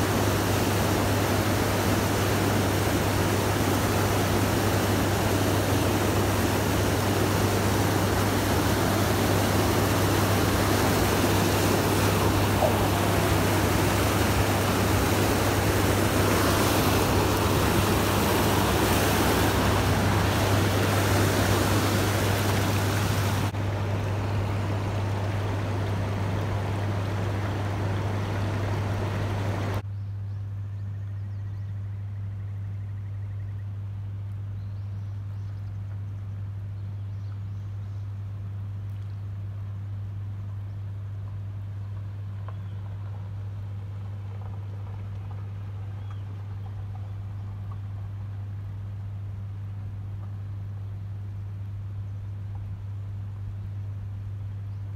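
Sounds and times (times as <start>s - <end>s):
water rushing past boat: 0.0s - 29.8s
steady low hum: 0.0s - 54.9s.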